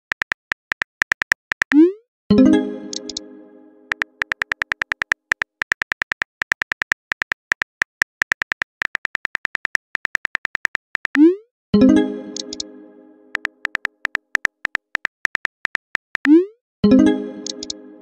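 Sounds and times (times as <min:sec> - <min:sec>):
smartphone keyboard clicks: 0:00.0 - 0:01.8, 0:02.9 - 0:03.2, 0:03.9 - 0:11.2, 0:12.4 - 0:12.6, 0:13.4 - 0:16.3, 0:17.4 - 0:17.8
message alert chime: 0:02.3 - 0:03.9.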